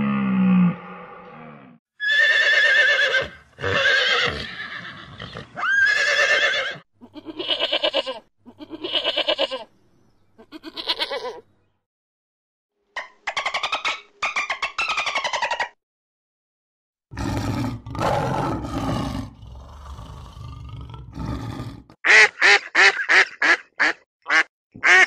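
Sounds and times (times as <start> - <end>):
sheep bleating: 7.0 - 9.7, 10.4 - 11.4.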